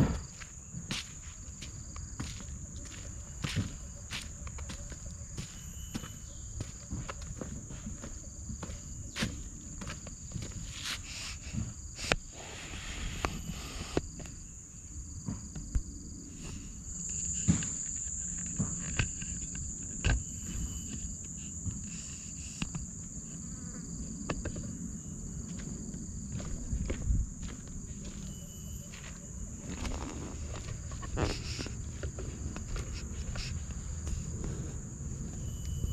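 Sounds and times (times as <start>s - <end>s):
footsteps: 0.0s - 11.8s, 25.4s - 35.5s
insects droning: 0.0s - 35.9s.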